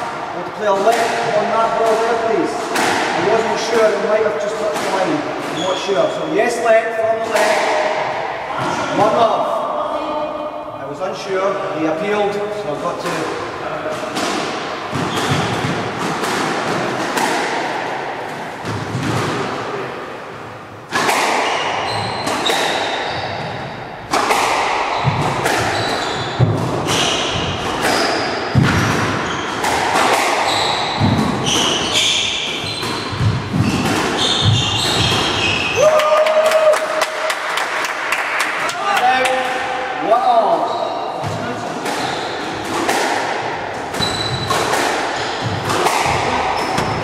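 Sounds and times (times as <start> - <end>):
squash ball hitting racquets and walls: 0.0 - 9.5, 12.9 - 47.0
sneakers squeaking on wooden floor: 5.5 - 6.2, 14.9 - 16.1, 21.4 - 23.9, 24.8 - 35.8, 40.6 - 42.9, 43.8 - 47.0.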